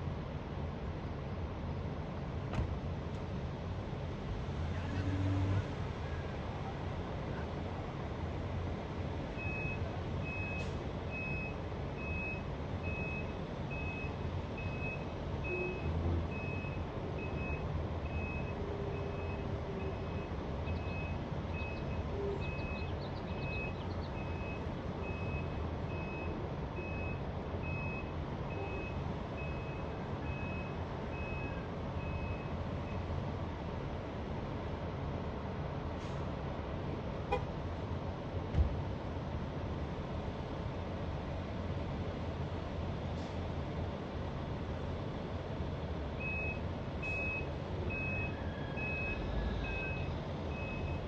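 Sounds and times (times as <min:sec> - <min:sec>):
reversing alarm beeping: 0:09.4 - 0:32.5, 0:46.2 - 0:51.0.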